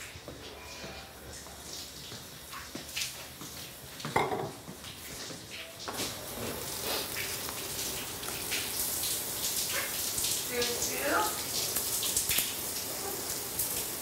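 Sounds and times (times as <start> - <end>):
things clinking on a counter: 4.1 - 4.6
sink tap running: 5.9 - 14.0.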